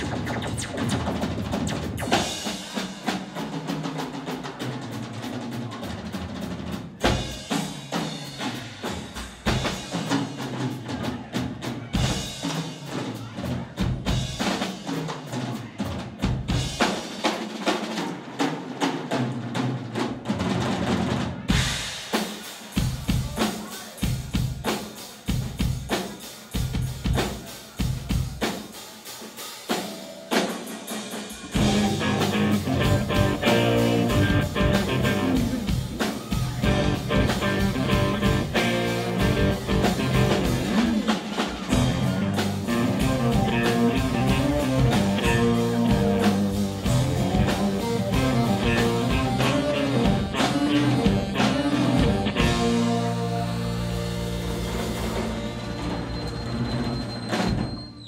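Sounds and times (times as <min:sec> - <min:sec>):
rock band playing: 0:00.0 - 0:19.2, 0:19.9 - 0:57.8
electric guitar: 0:31.5 - 0:55.9.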